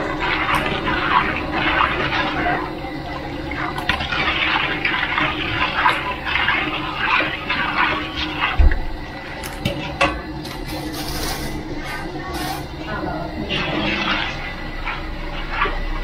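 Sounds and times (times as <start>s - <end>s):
syrup sloshing and bubbling: 0.0s - 16.0s
metal ladle scraping wok: 10.5s - 12.7s.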